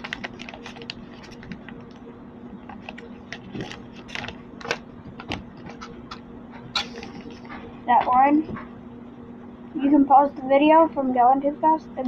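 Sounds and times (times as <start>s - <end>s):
paper being folded and creased: 0.0s - 1.9s, 2.7s - 5.9s
low steady hum: 0.0s - 12.0s.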